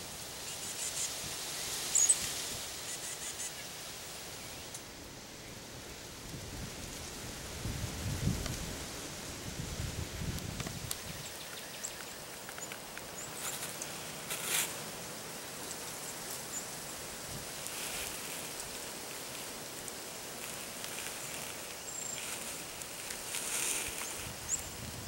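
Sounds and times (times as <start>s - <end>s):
hiss of air and leaves: 0.0s - 25.0s
faint high bird chirps: 1.9s - 2.2s.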